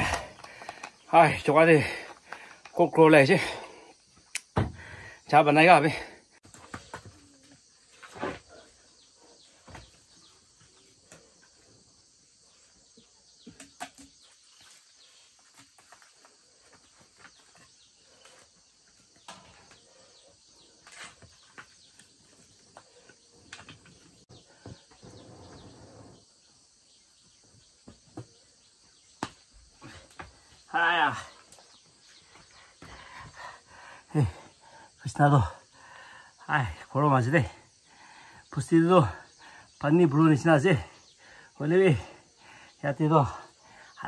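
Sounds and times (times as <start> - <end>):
firewood sticks knocking and scraping: 13.4 - 18.5.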